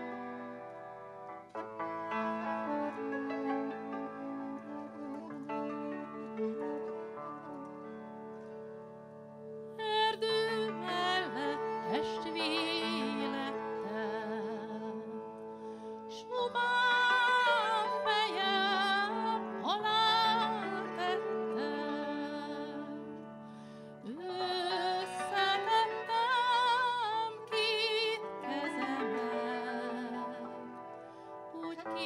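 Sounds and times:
slow melody with vibrato: 0.0s - 32.0s.

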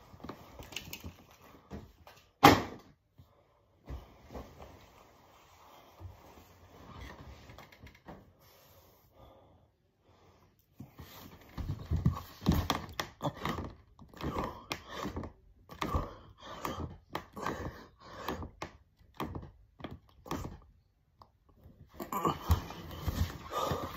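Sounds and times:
man breathing hard: 13.3s - 18.6s, 22.1s - 23.9s.

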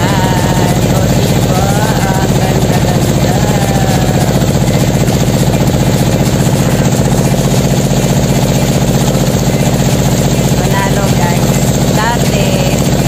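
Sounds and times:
motorboat engine droning: 0.0s - 13.0s.

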